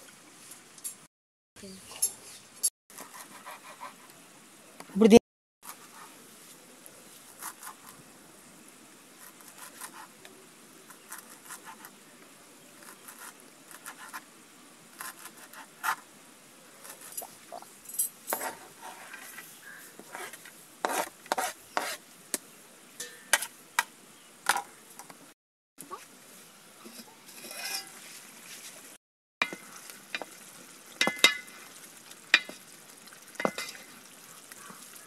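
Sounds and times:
knife scraping onto ceramic plate: 26.8s - 28.0s.

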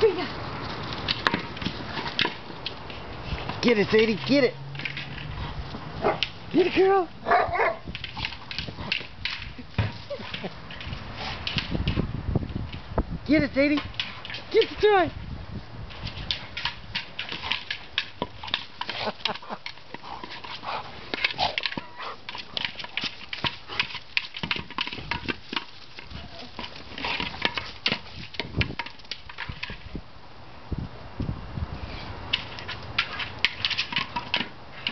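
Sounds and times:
dog pushing toy ball over dirt: 0.0s - 30.0s, 31.7s - 34.9s
rustling brush: 13.8s - 30.0s.

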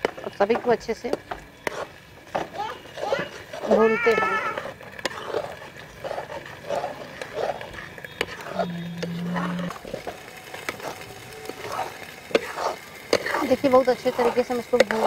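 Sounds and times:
gravy frying: 0.0s - 15.0s
ladle scraping pan: 0.0s - 15.0s
low animal call: 8.4s - 9.8s.

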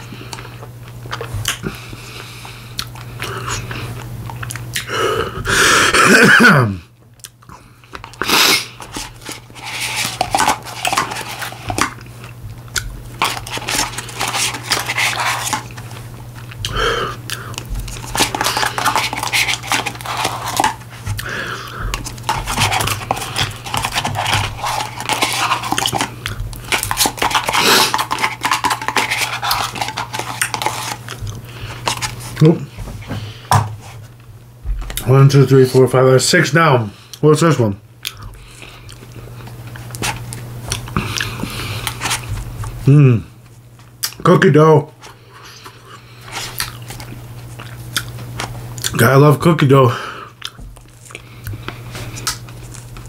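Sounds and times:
chewing and mouth smacking: 0.3s - 4.9s, 7.0s - 32.4s, 38.0s - 42.8s, 43.8s - 44.2s, 45.4s - 49.0s, 50.4s - 53.0s.

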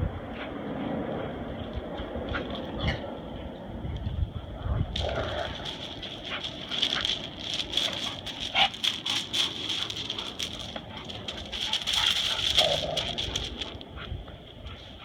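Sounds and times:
dog paws crunching on gravel: 4.9s - 14.1s.

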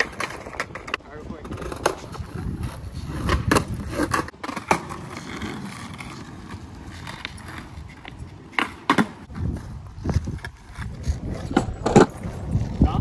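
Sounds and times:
skateboard clacking on pavement: 0.0s - 12.4s
skateboard wheels rolling on asphalt: 0.0s - 13.0s.

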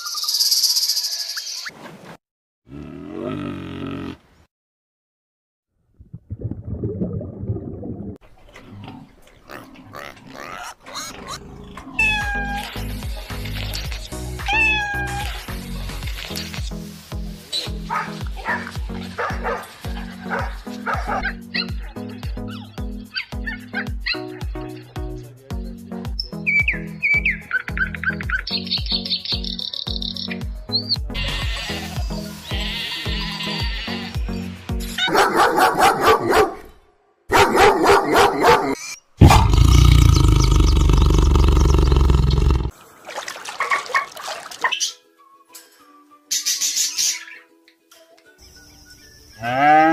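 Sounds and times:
cat meowing: 12.0s - 12.7s, 14.4s - 15.4s
background music: 12.0s - 36.6s, 44.6s - 49.9s.

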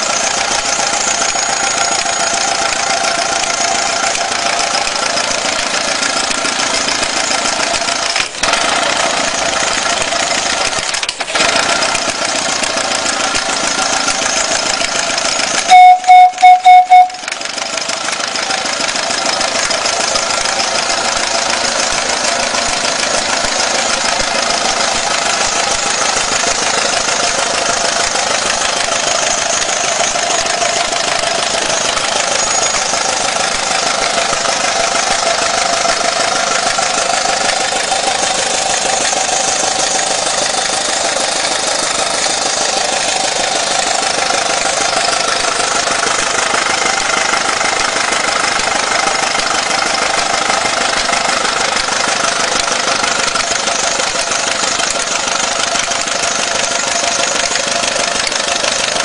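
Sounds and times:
model traction engine knocking: 0.0s - 59.0s.

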